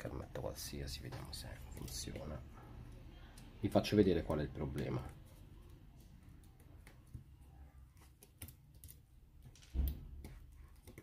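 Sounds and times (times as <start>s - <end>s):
fingers clicking and tapping: 8.0s - 11.0s.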